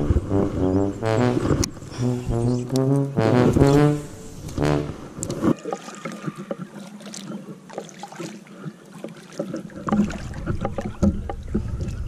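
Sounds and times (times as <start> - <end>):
background music held notes: 0.0 - 5.2
paddle splashing in water: 4.0 - 12.0
small irregular knocks: 9.4 - 12.0.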